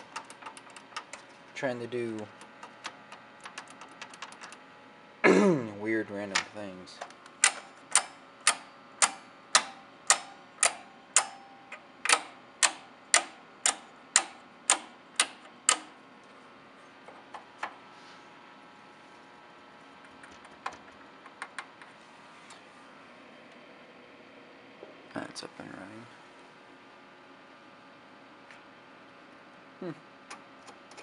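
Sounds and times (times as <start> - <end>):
toggle switch clicks: 7.4 - 15.9.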